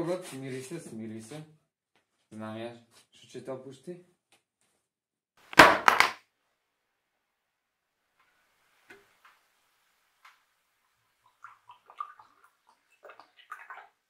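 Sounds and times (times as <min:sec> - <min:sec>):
objects knocking on wooden table: 0:05.6 - 0:06.2.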